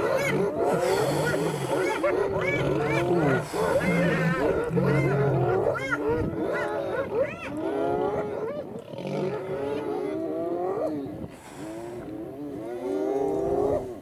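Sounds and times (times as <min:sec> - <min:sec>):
lions and hyenas calling: 0:00.0 - 0:14.0.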